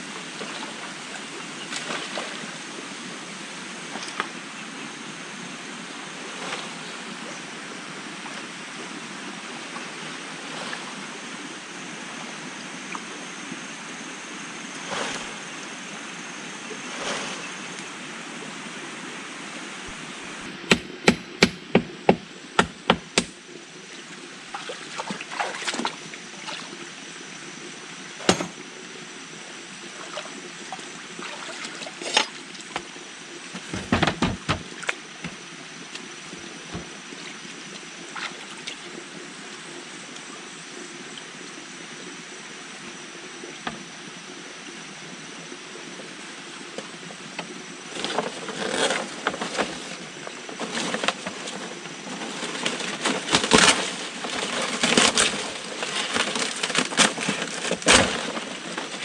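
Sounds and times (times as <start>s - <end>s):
flowing water: 0.0s - 20.6s, 21.7s - 59.0s
wooden mallet knocking a post: 28.3s - 28.6s.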